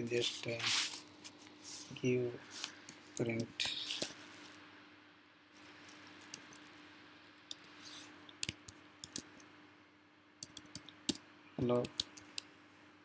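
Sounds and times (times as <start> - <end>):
faint steady hum: 0.0 - 13.0
computer keyboard typing clicks: 10.4 - 11.0.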